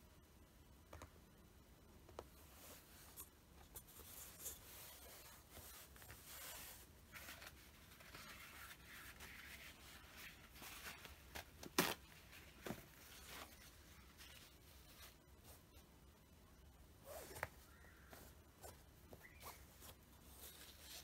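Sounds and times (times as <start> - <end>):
rustling on cloth tabletop: 2.0 - 15.9, 17.0 - 21.0.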